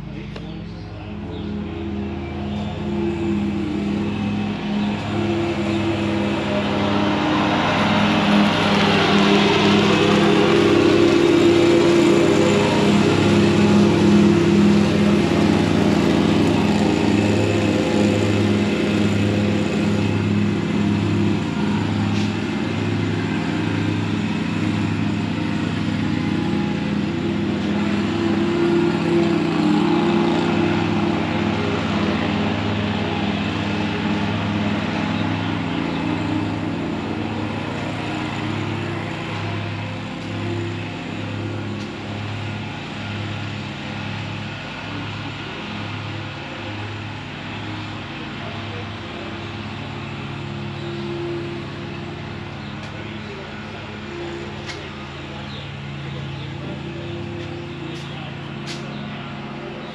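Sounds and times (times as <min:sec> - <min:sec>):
small engine throbbing drone: 0:00.0 - 0:59.9.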